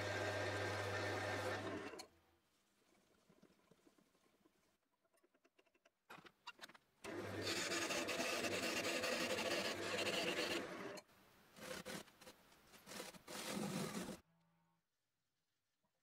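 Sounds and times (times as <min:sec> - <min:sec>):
lathe motor hum: 0:00.0 - 0:02.0.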